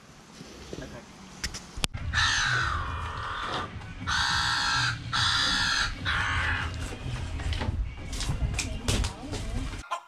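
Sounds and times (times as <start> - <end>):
crow cawing: 2.0 - 6.8.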